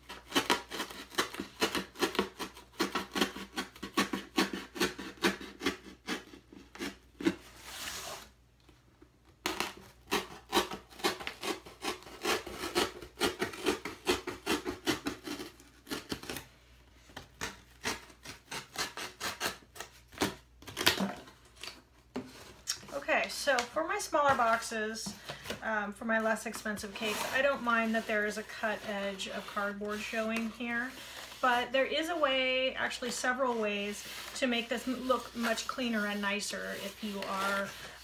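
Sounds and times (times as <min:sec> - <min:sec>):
craft knife sawing through cardboard: 0:00.0 - 0:08.3, 0:09.5 - 0:16.4, 0:17.4 - 0:20.4, 0:26.5 - 0:38.0.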